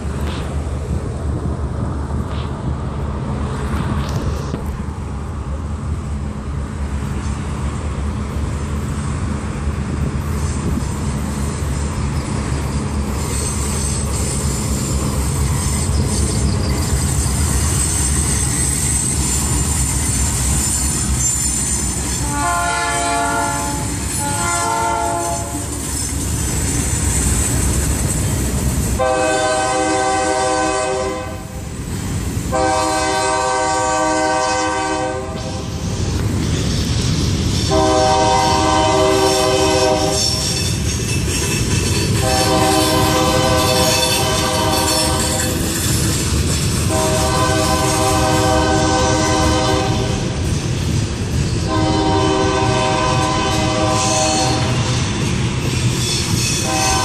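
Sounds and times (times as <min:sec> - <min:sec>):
freight train rumbling past: 0:00.0 - 0:57.0
steel wheels whining on rail: 0:00.0 - 0:57.0
locomotive air horn blasts: 0:22.1 - 0:25.7, 0:29.0 - 0:31.6, 0:32.5 - 0:35.7, 0:37.6 - 0:40.6, 0:42.2 - 0:45.6, 0:46.9 - 0:50.4, 0:51.6 - 0:54.9, 0:56.6 - 0:57.0.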